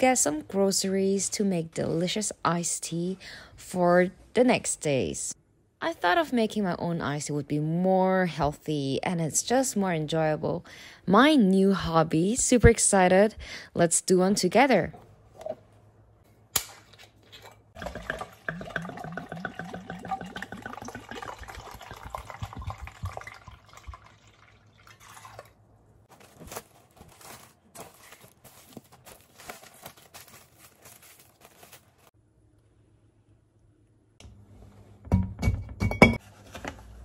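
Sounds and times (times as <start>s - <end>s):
liquid pouring into metal bowl: 17.8s - 25.5s
plastic wrap crackling: 26.1s - 32.1s.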